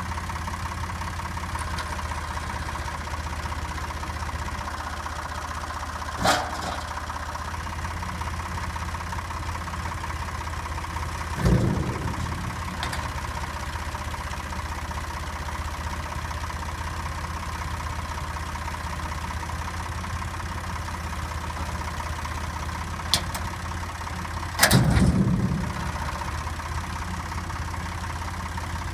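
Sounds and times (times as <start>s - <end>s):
tractor engine idling: 0.0s - 28.9s
machine clanks and thuds: 6.2s - 7.0s, 11.3s - 14.1s, 24.5s - 26.2s.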